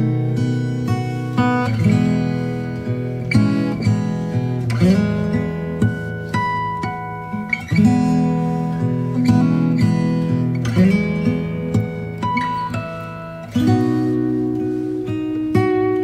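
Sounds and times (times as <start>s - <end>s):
acoustic guitar music: 0.0s - 16.0s.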